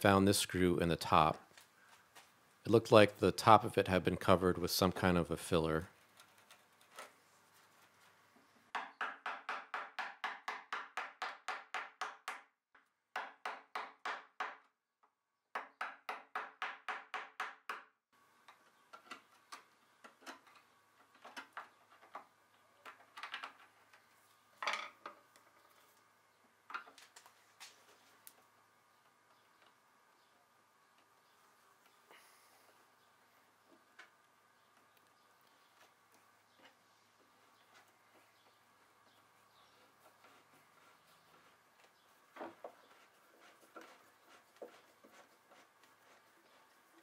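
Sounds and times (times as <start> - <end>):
metal pick scratching wood: 39.6 - 46.6.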